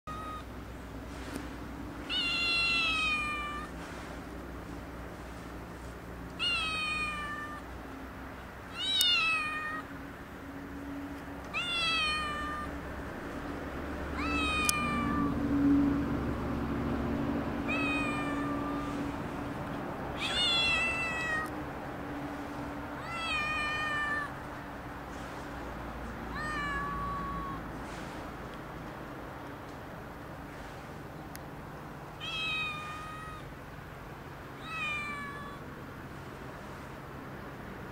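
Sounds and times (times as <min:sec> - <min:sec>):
cat meowing: 0:00.1 - 0:00.5, 0:02.1 - 0:03.8, 0:06.4 - 0:07.7, 0:08.7 - 0:09.9, 0:11.5 - 0:12.8, 0:14.1 - 0:15.4, 0:17.6 - 0:19.0, 0:20.2 - 0:21.6, 0:23.0 - 0:24.4, 0:26.3 - 0:27.7, 0:32.2 - 0:33.5, 0:34.6 - 0:35.7.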